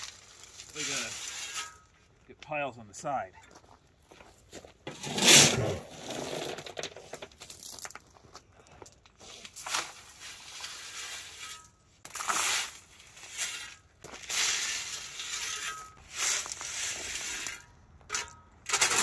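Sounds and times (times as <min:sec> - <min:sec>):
shovel scooping gravel: 0:00.0 - 0:01.9, 0:04.9 - 0:07.9, 0:09.2 - 0:19.0.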